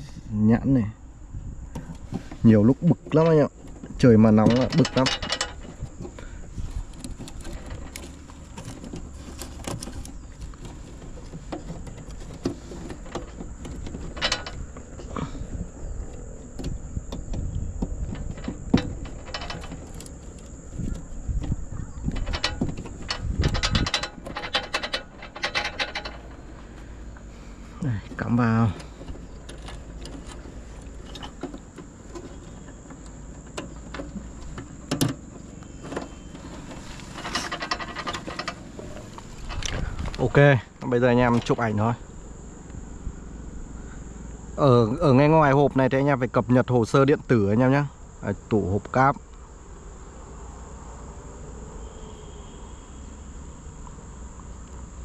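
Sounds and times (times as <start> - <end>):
low steady rumble: 0.0 - 55.0
plastic rattle: 1.8 - 15.2, 16.1 - 26.6, 28.1 - 40.3
small plastic clicks and rustles: 3.2 - 15.1.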